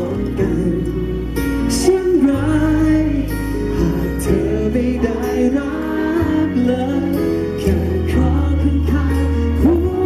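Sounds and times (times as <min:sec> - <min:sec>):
accompanying music with bass: 0:00.0 - 0:10.0
man singing into microphone: 0:00.0 - 0:10.0.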